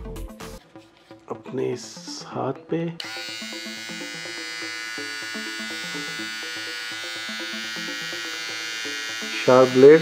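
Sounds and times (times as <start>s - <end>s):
background music: 0.0s - 10.0s
beard trimmer buzzing: 3.0s - 10.0s.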